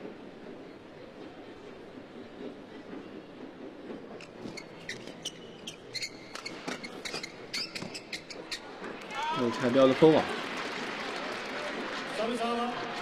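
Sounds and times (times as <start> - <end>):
shoes squeaking on court: 4.2 - 9.0.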